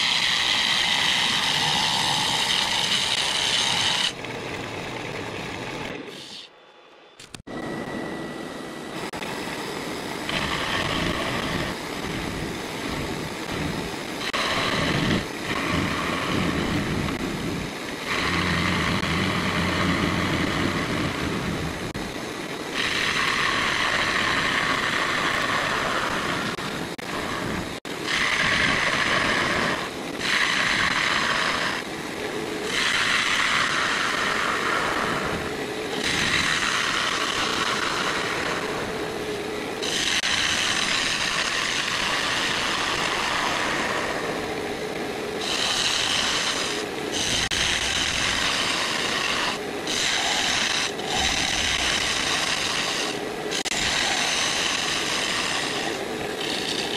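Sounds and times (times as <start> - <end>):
lathe humming: 8.9 - 56.9
gouge scraping wood: 45.4 - 56.9.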